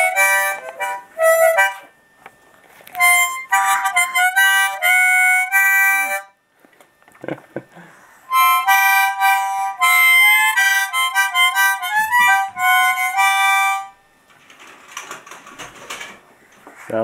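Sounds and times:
harmonica chords: 0:00.0 - 0:02.0, 0:02.8 - 0:06.4, 0:07.7 - 0:14.2.

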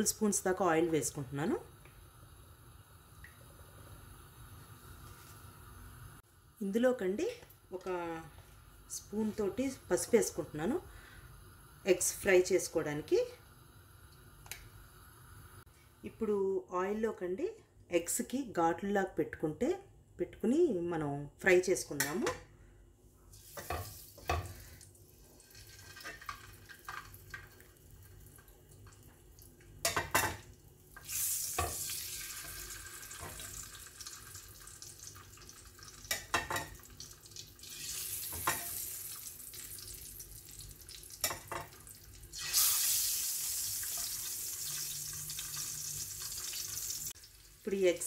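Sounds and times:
eggs sizzling in hot oil: 0:07.6 - 0:15.7, 0:23.3 - 0:48.0.

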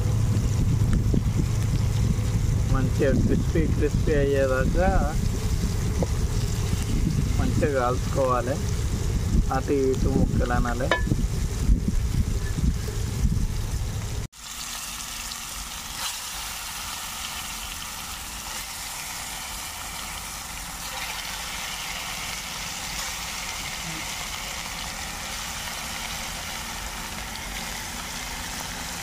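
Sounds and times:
fish sizzling in hot oil: 0:00.0 - 0:10.0, 0:10.9 - 0:29.0.

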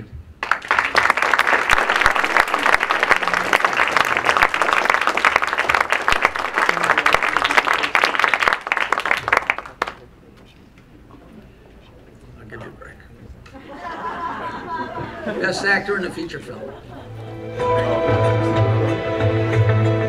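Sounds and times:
audience applauding: 0:00.4 - 0:10.1.

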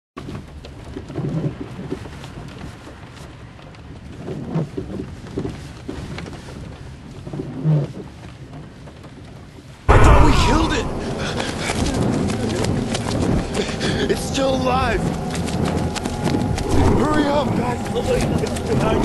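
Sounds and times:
low dull rumbles: 0:09.9 - 0:19.0
rain pattering on car: 0:11.8 - 0:19.0.

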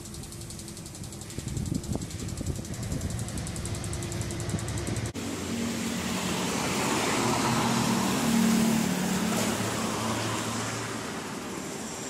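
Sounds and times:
car passing by: 0:04.4 - 0:12.0.

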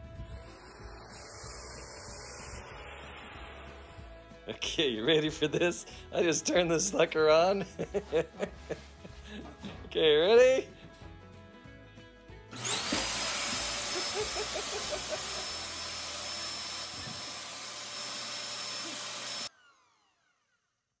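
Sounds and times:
fogger motor whine and air rush: 0:00.0 - 0:04.4.

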